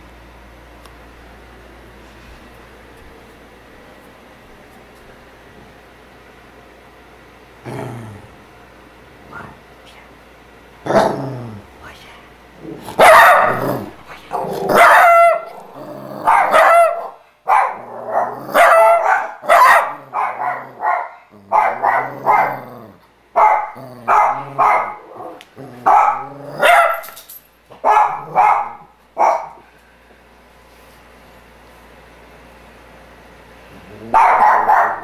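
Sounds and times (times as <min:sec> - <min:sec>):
small dog barking: 0:12.9 - 0:13.9, 0:14.7 - 0:15.6, 0:16.2 - 0:22.7, 0:23.4 - 0:25.1, 0:25.8 - 0:27.2, 0:27.8 - 0:29.6, 0:34.0 - 0:35.0.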